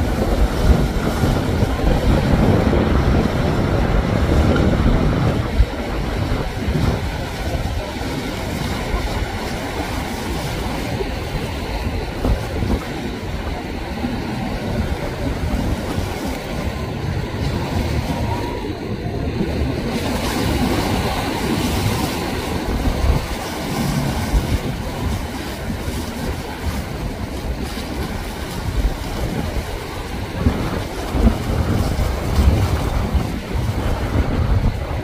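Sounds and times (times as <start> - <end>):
surf breaking and churning: 0.0 - 35.0
wind gusting on microphone: 0.0 - 35.0.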